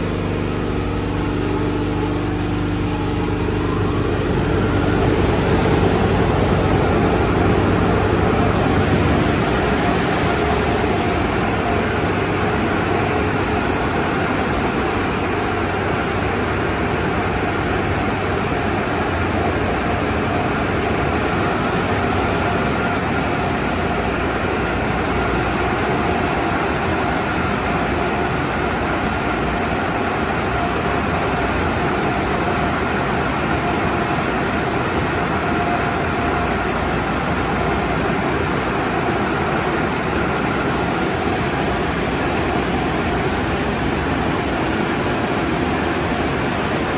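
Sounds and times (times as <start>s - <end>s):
low hum: 0.0s - 26.1s
car-wash dryer blowers rushing: 0.0s - 46.9s.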